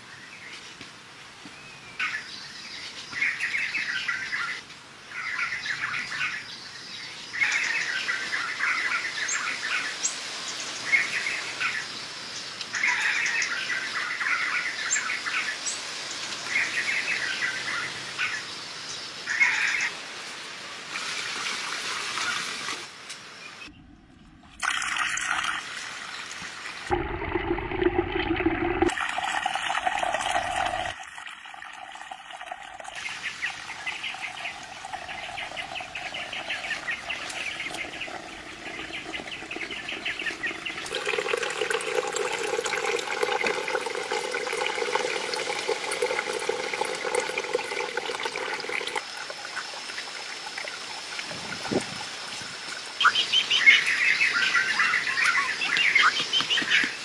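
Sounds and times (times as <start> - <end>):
water trickling into pond: 7.1 - 23.2, 23.9 - 57.0
birds calling: 32.9 - 42.2, 53.0 - 57.0.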